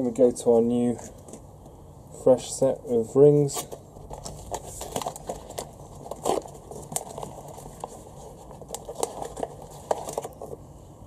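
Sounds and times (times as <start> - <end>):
paper rustling and crinkling: 3.5 - 10.6.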